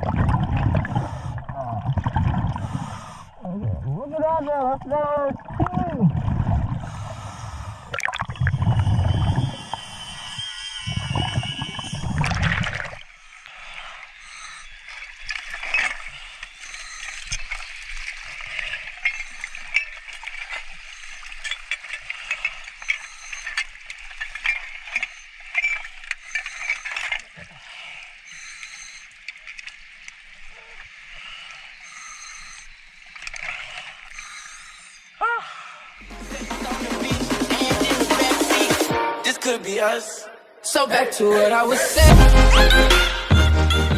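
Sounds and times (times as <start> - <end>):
scuba bubbles rumbling underwater: 0.0 - 4.1, 4.8 - 9.9, 10.9 - 13.0
water splashing and dripping: 0.0 - 9.6, 11.0 - 34.4.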